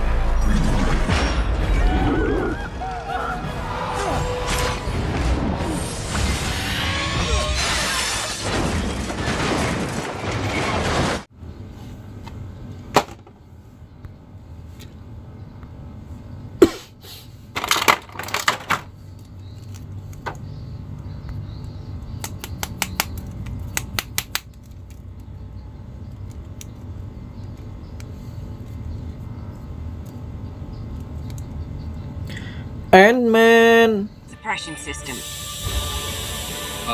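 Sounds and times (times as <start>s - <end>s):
plastic clicks and rustles: 17.6s - 20.4s
plastic crackles: 17.6s - 20.4s, 22.3s - 25.4s.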